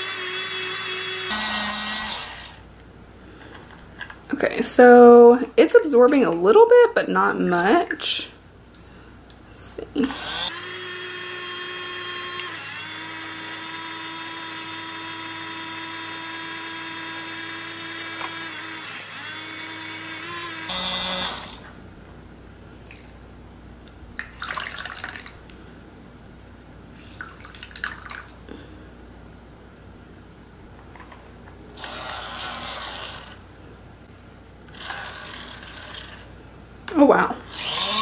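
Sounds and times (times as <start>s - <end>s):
small electric motor whining: 0.0s - 2.6s, 10.0s - 21.7s, 31.8s - 33.4s, 34.7s - 36.3s, 37.5s - 38.0s.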